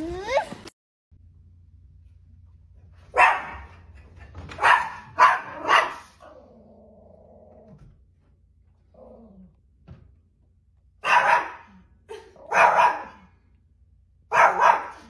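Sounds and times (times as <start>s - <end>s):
small dog barking: 3.1s - 3.7s, 4.6s - 6.3s, 11.0s - 11.8s, 12.4s - 13.3s, 14.3s - 15.0s.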